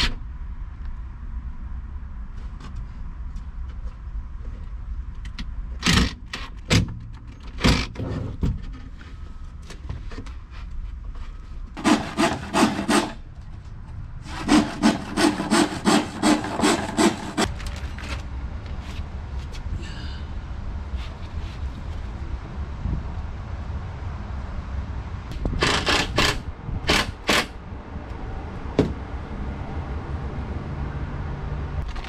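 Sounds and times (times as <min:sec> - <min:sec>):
handsaw cutting wood: 0:11.8 - 0:13.2, 0:14.2 - 0:17.5.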